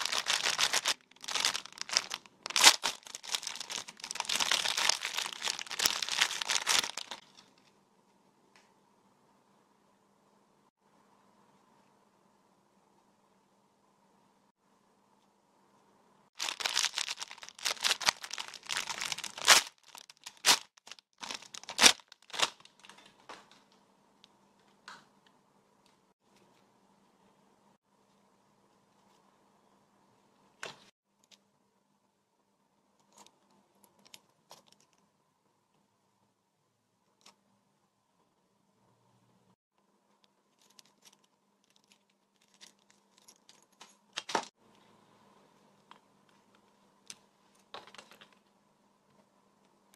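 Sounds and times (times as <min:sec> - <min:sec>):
plastic packaging crinkling: 0:00.0 - 0:07.4, 0:16.4 - 0:23.3.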